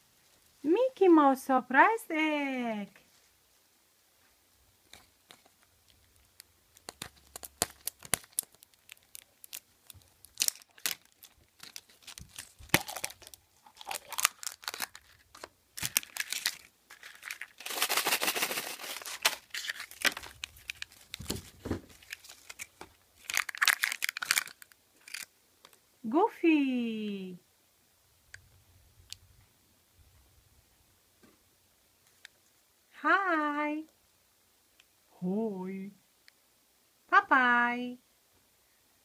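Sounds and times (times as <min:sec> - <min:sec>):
plastic wrapping crinkling: 0:04.8 - 0:25.8.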